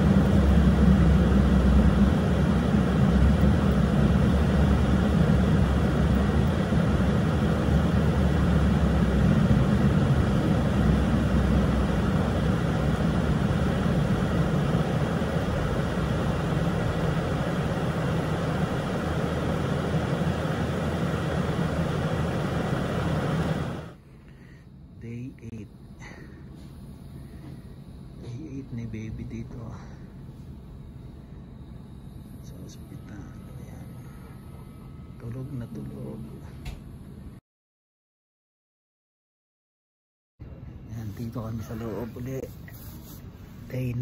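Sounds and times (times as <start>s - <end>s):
car cabin road and engine noise: 0.0s - 24.0s.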